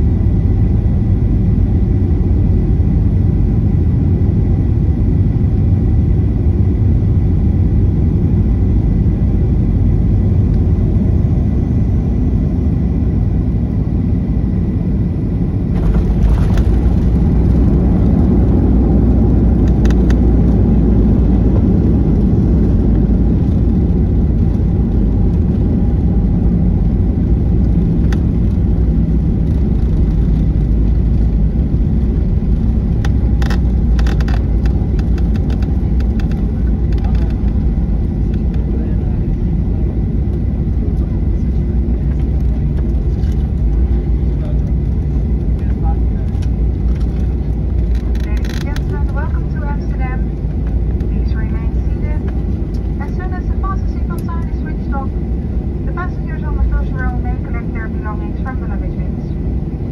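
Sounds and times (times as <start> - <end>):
jet engine and airflow rumble: 0.0 - 59.9
plane touchdown jolt: 15.6 - 19.4.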